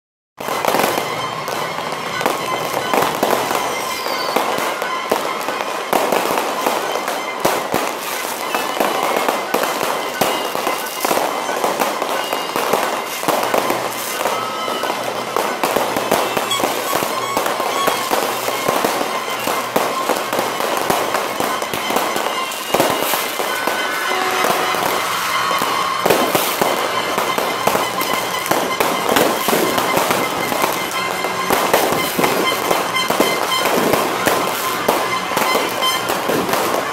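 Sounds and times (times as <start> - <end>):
fireworks bangs: 0.4 - 36.9
fireworks crackling: 0.4 - 36.9.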